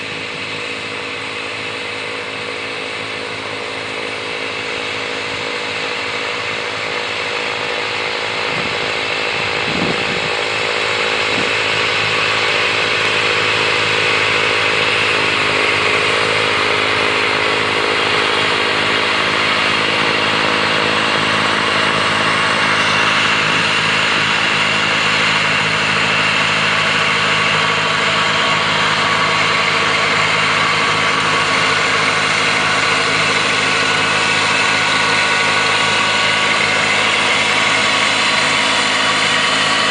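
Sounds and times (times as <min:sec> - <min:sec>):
snowblower throwing snow hiss: 0:00.0 - 0:39.9
tractor diesel engine running: 0:00.0 - 0:39.9.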